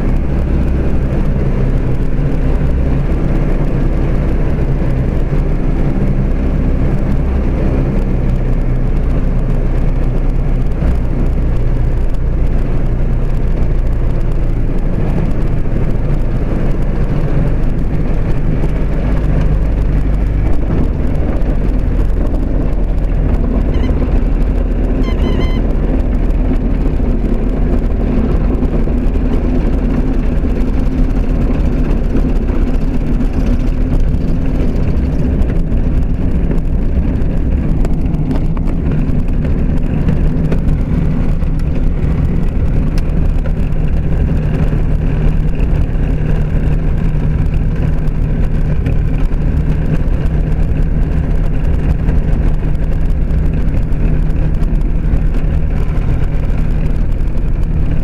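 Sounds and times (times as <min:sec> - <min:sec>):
light aircraft engine and propeller: 0:00.0 - 0:58.0
short high chirps: 0:23.7 - 0:24.0, 0:25.0 - 0:25.7.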